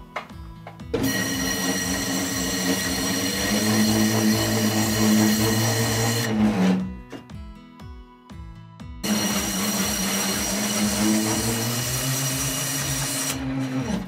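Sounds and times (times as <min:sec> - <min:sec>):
leather skiving machine running: 0:01.0 - 0:06.9, 0:09.0 - 0:14.0.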